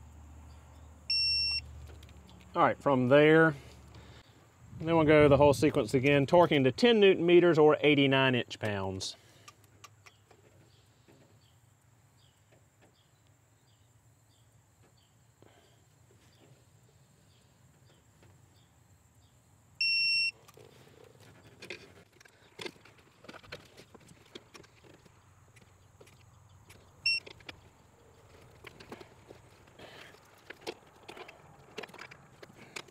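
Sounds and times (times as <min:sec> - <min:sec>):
torque wrench beeping: 0:01.1 - 0:01.6, 0:19.8 - 0:20.4, 0:27.0 - 0:27.4.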